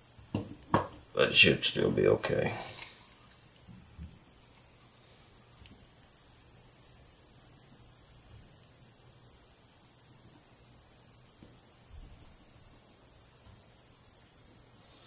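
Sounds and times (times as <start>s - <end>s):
high-pitched electrical whine: 0.0s - 15.0s.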